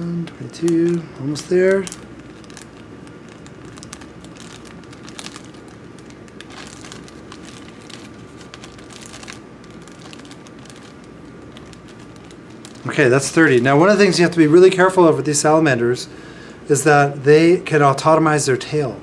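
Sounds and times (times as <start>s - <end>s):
plastic bag crinkling: 0.4s - 14.8s.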